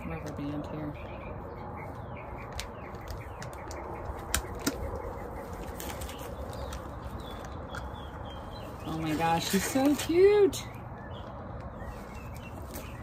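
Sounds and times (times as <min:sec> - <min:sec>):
birds chirping faintly: 0:00.0 - 0:13.0
plastic and bubble wrap rustling: 0:05.4 - 0:10.4.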